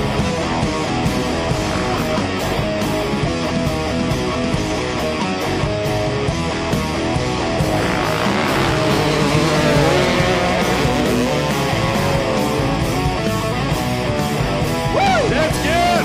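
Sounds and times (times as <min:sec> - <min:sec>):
rock music with guitar: 0:00.0 - 0:16.0.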